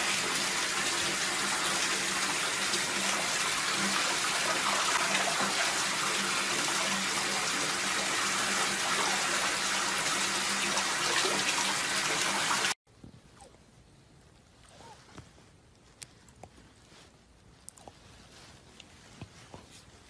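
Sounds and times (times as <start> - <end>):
water gushing into bathtub: 0.0 - 12.8.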